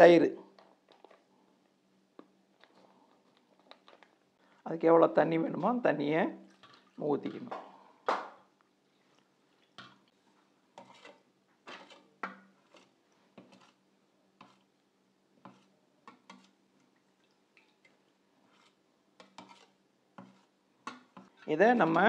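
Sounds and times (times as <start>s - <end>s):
ladle knocking and scraping in bowl: 10.7s - 13.8s, 14.4s - 14.7s, 15.4s - 16.6s, 18.4s - 22.0s.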